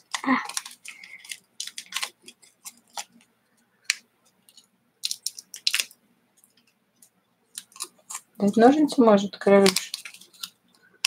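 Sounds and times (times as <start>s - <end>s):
foil sachet crinkling and tearing: 0.0s - 3.2s, 5.0s - 6.0s, 7.6s - 10.5s.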